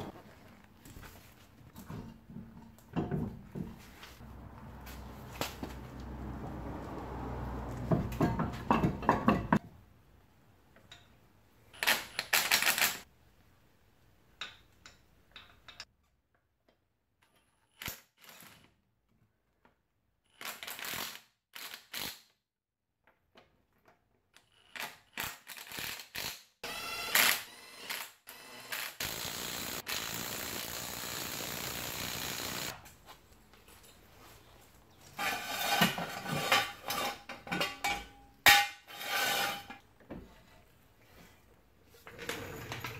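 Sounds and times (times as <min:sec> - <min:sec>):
impact wrench bursts: 0:25.6 - 0:32.8
nuts and tools clinking: 0:32.6 - 0:38.9.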